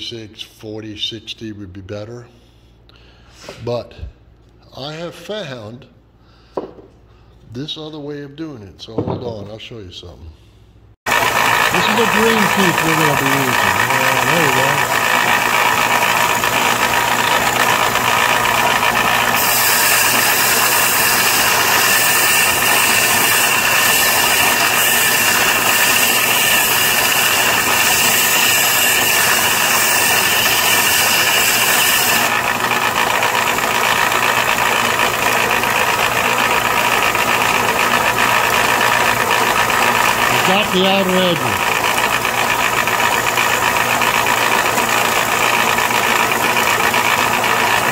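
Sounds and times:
belt sander motor hum: 0:11.1 - 0:47.9
metal grinding on sanding belt: 0:11.1 - 0:47.9.

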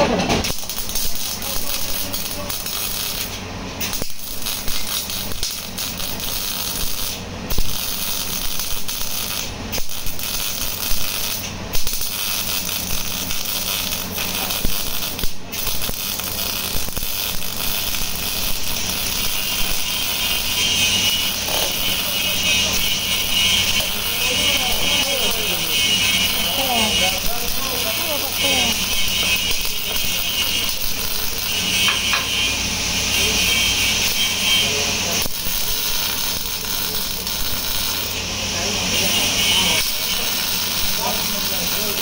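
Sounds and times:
welding arc crackling: 0:00.0 - 0:42.0.

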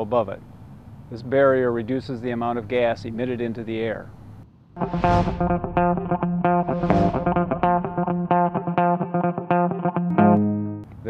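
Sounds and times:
plucked guitar over bass note: 0:04.8 - 0:10.8.

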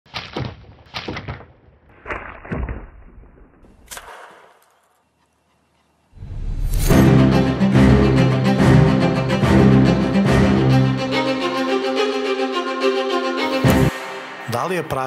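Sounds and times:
slingshot snaps and thuds: 0:00.1 - 0:05.0
loud music: 0:06.9 - 0:15.0.

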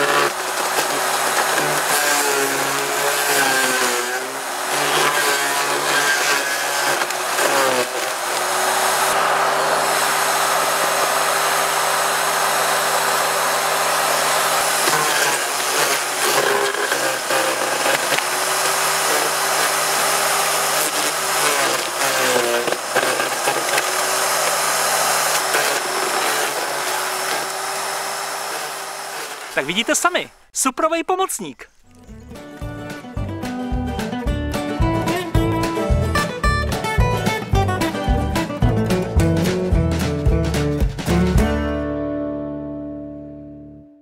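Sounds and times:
garden shredder chopping branches: 0:00.0 - 0:30.5.

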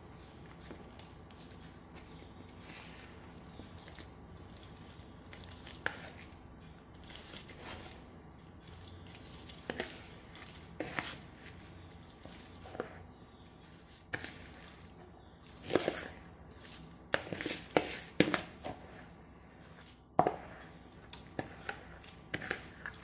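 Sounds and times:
metal spoon scraping plastic bowl: 0:08.6 - 0:11.5, 0:15.5 - 0:19.0, 0:19.7 - 0:23.0.

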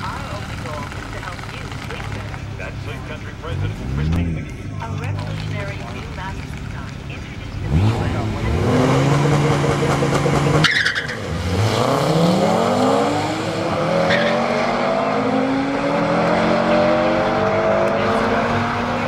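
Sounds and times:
car engines revving: 0:00.0 - 0:19.0.

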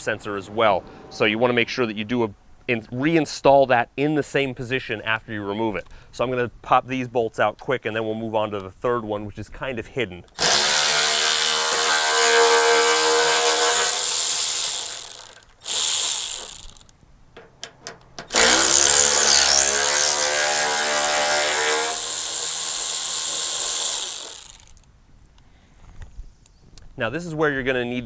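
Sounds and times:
power ratchet whirring: 0:10.4 - 0:24.9.

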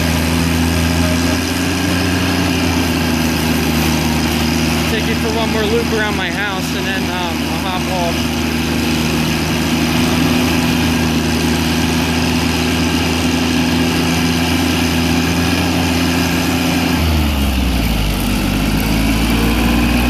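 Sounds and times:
garden tractor engine running: 0:00.0 - 0:20.0.

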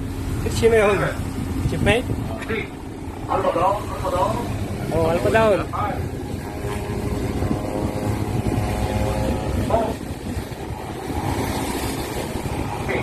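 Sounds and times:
boat engine rumble: 0:00.0 - 0:13.0
pitched drone: 0:02.4 - 0:13.0.

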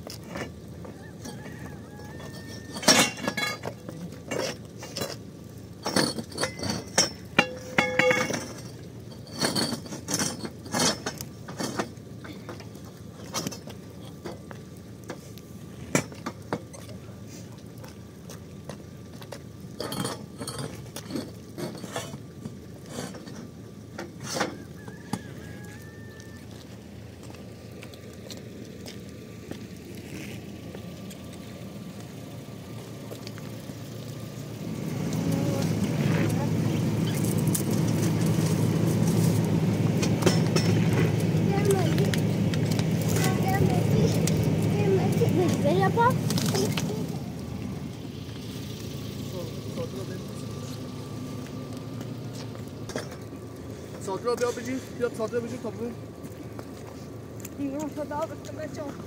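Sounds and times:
metal tubes clinking and clanking: 0:00.1 - 0:15.2, 0:18.7 - 0:24.9, 0:35.5 - 0:47.0, 0:52.4 - 0:55.9.

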